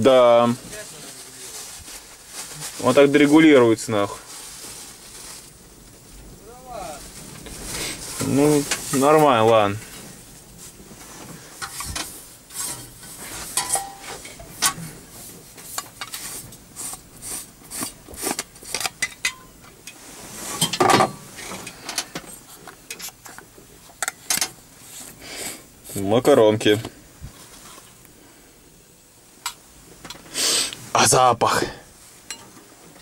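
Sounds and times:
rustling scrape: 0.1s - 28.0s.

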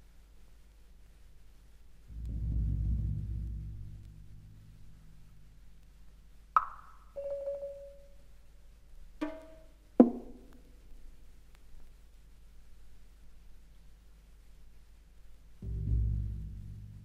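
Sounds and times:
sharp struck notes: 15.6s - 17.0s.

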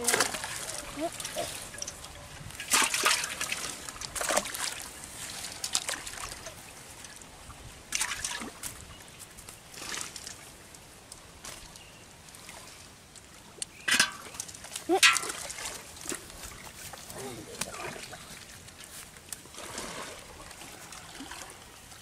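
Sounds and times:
fish splashing in water: 0.0s - 6.5s.

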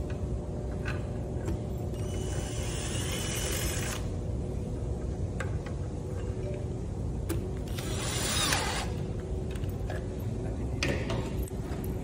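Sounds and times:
cordless drill driving screw: 7.7s - 8.9s.

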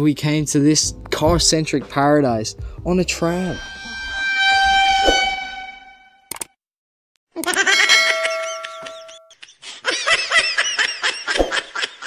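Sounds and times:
high-pitched laughing sound effect: 7.4s - 12.0s.

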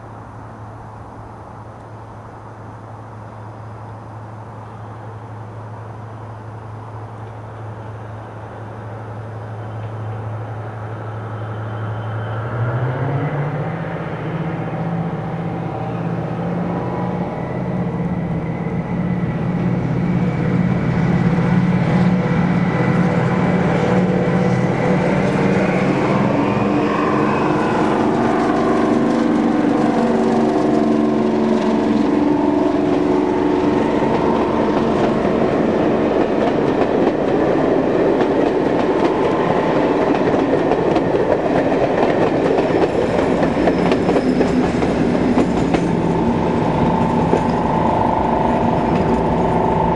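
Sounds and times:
diesel locomotive passing: 0.0s - 49.9s
coaches clattering over rail joints: 33.7s - 49.9s.

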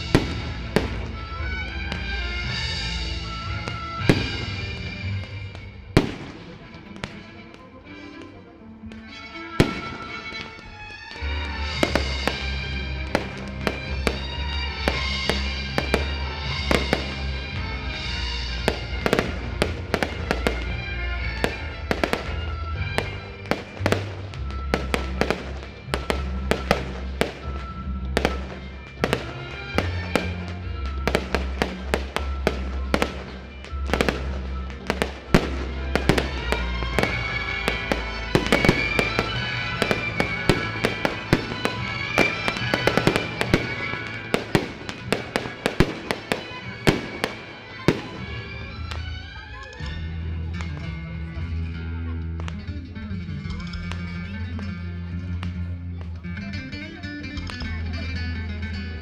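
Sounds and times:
fireworks bangs and crackles: 0.0s - 50.9s
music with steady bass line: 11.3s - 47.2s, 50.0s - 59.0s.

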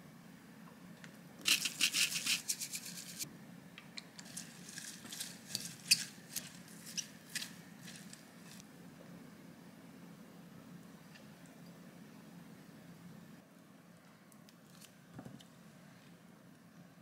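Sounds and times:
seasonings rattling into glass jug: 1.5s - 3.2s.

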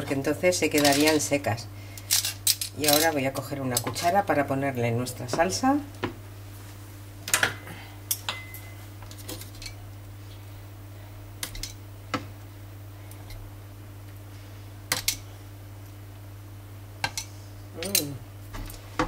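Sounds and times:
steady low hum: 0.0s - 19.0s
metal spoon clinking on pans: 7.4s - 8.8s.

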